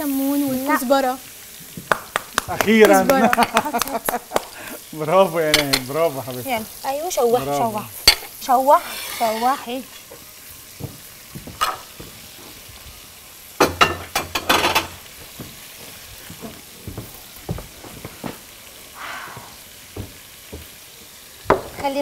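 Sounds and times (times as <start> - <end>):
onions sizzling in oil: 0.0 - 22.0
spatula knocking pan: 5.5 - 6.0, 13.6 - 15.6, 21.5 - 21.9.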